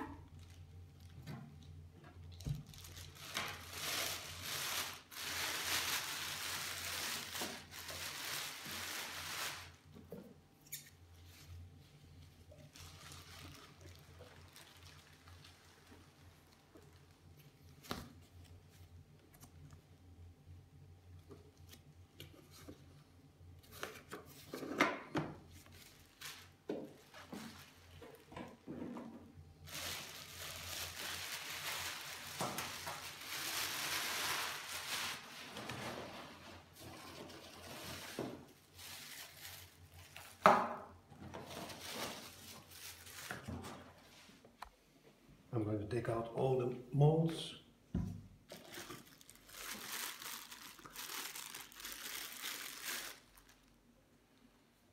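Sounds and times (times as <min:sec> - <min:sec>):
plastic wrapping rustling: 0:00.0 - 0:10.1, 0:10.7 - 0:19.8, 0:25.4 - 0:44.5, 0:48.4 - 0:53.9.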